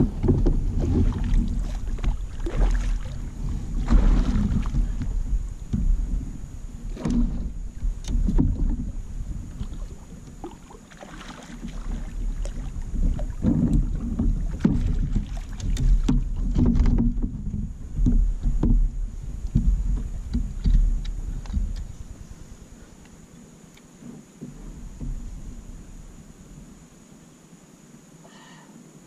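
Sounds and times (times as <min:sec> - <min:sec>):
wind and water rumble: 0:00.0 - 0:29.0
knocks on plastic kayak hull: 0:13.2 - 0:18.9.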